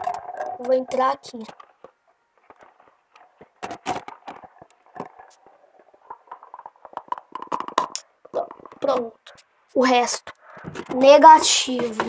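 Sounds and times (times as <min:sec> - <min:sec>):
plastic cups clicking and knocking: 0:00.0 - 0:09.4.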